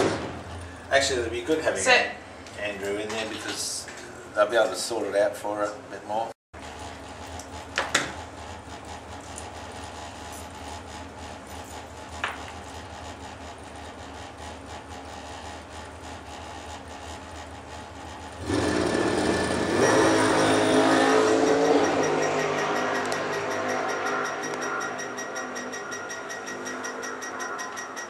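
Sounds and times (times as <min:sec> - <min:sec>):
dragster engine: 0:12.0 - 0:26.0.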